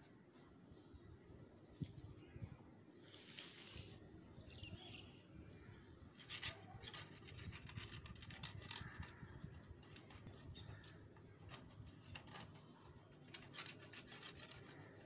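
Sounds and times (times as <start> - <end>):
brief rustle: 3.0 - 4.0.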